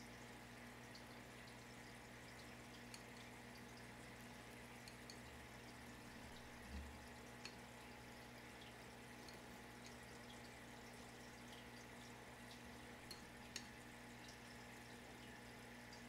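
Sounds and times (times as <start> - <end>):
faint room hum: 0.0 - 16.0
tiny soft ticks: 13.0 - 14.4.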